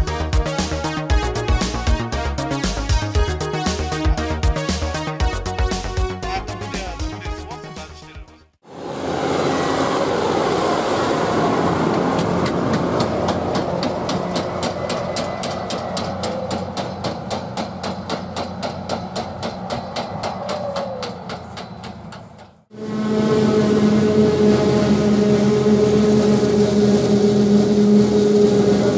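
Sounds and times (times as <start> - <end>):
tractor running: 8.7 - 28.9
wagon bouncing and rattling: 12.2 - 22.6.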